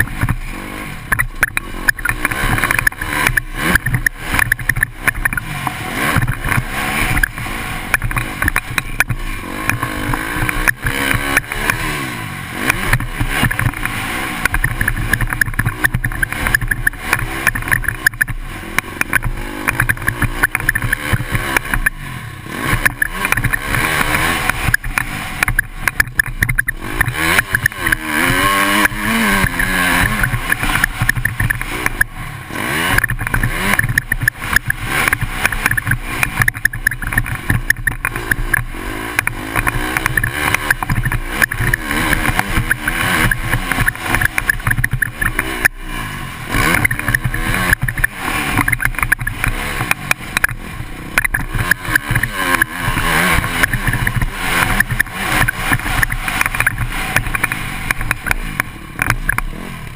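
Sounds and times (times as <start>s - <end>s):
motocross bike engine revving: 0.0s - 59.9s
wind noise on camera: 12.6s - 32.2s, 32.9s - 59.9s.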